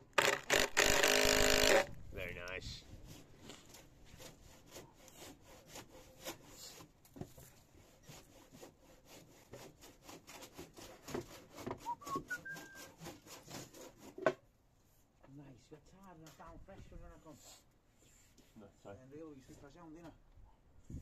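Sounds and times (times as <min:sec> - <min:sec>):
rasping strokes on timber: 0:03.1 - 0:14.4
short rising whistle: 0:11.8 - 0:12.9.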